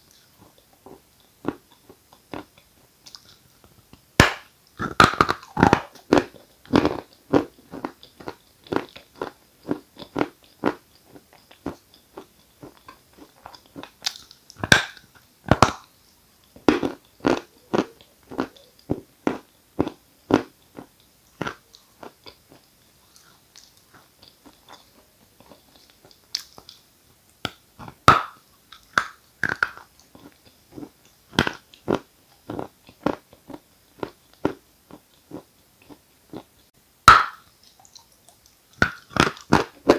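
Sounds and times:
chewing: 4.8 - 15.9, 16.5 - 26.9.

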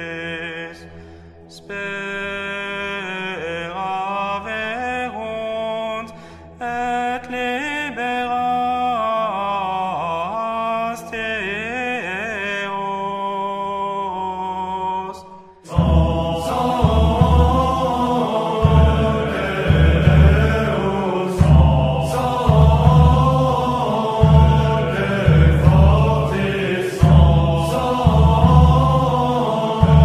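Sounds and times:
person singing religious chant: 0.0 - 30.0
loud noisy sound: 15.7 - 30.0.

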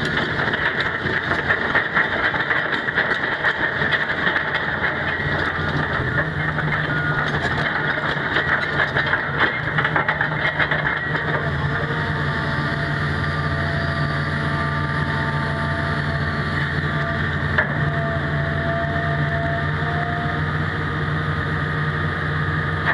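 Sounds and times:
gravel crackling under tracks: 0.0 - 12.2
hydraulic whines: 0.0 - 21.3
excavator diesel engine humming: 0.0 - 22.9.

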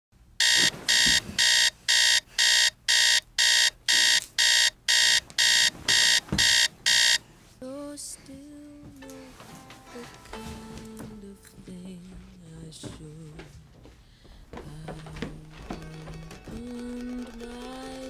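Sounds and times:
electronic alarm beeping: 0.4 - 7.2
music with a melody: 7.8 - 13.5, 14.8 - 18.0.

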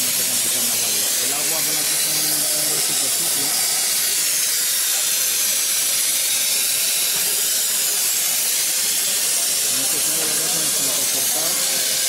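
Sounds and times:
plasma torch hissing: 0.0 - 12.0.

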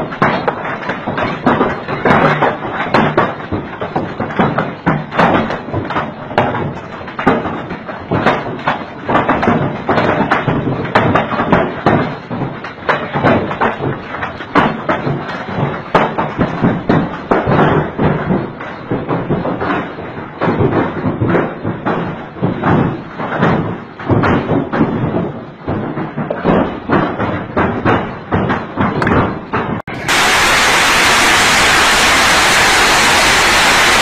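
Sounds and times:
hailstones clattering: 0.0 - 34.0
hiss of falling rain: 29.9 - 34.0.

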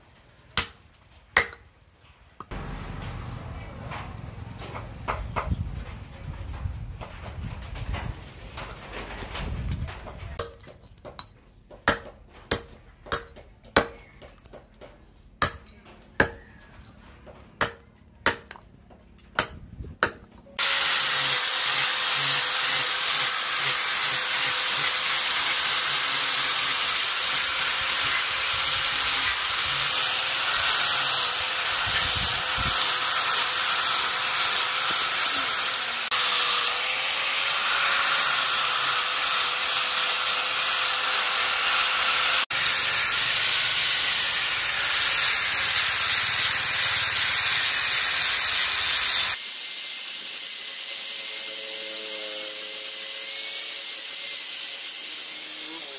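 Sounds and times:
hatchet chopping wood: 0.6 - 1.7, 10.4 - 16.6, 17.4 - 25.0
angle grinder sanding wood: 20.6 - 55.9.

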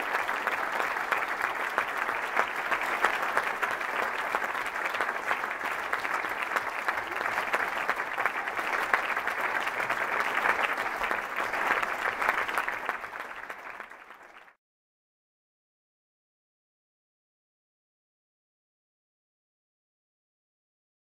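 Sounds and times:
audience applauding: 0.0 - 14.6.

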